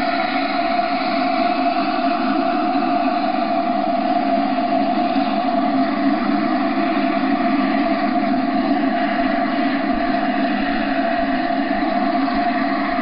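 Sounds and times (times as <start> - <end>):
model helicopter engine whine: 0.0 - 13.0.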